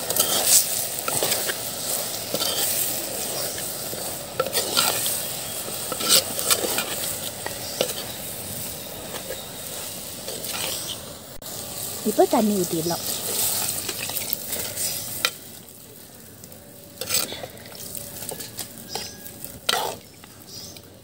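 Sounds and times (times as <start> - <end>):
oil sizzling: 0.0 - 21.0
spoon scraping pot: 5.8 - 8.2, 17.0 - 20.0.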